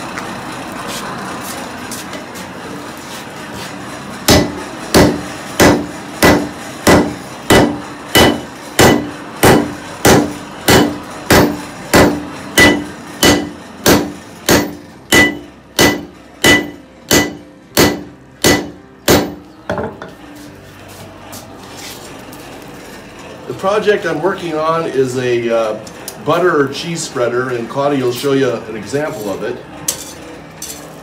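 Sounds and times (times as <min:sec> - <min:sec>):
hammer striking metal on anvil: 0:04.3 - 0:20.2.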